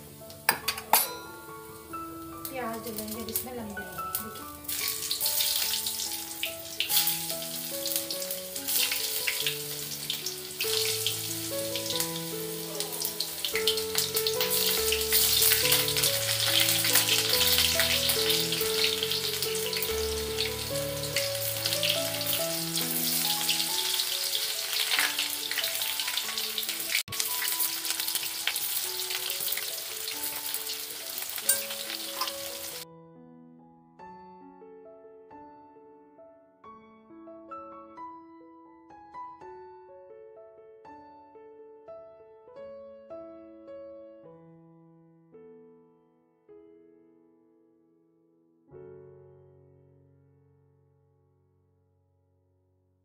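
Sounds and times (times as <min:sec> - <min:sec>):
background music with held notes: 0:00.0 - 0:44.8
onions sizzling in hot oil: 0:01.2 - 0:32.8.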